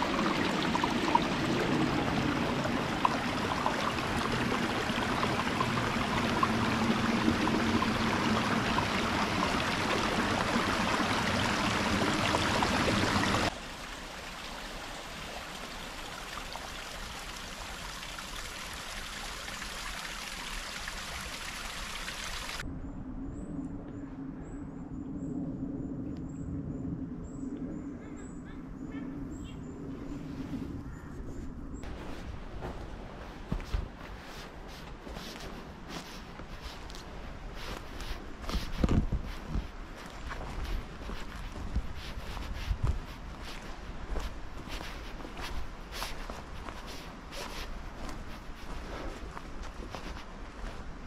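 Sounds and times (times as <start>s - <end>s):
stream trickling over stones: 0.0s - 22.6s, 33.4s - 50.9s.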